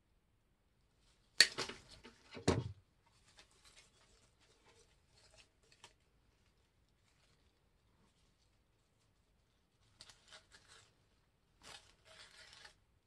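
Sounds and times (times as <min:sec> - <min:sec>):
plastic flowers rustling: 0:03.1 - 0:12.8.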